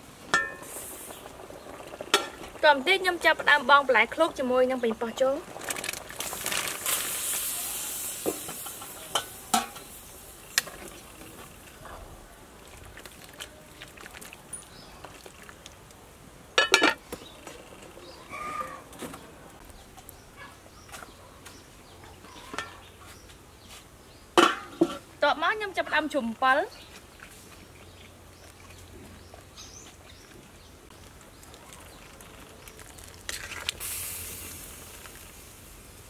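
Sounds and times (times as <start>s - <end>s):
metal ladle knocking on pot: 16.6s - 17.0s.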